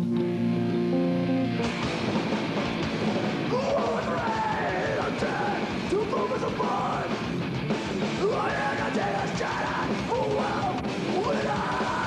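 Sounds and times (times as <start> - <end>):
gliding lead guitar lines: 0.0 - 5.9
death metal music: 0.0 - 12.0.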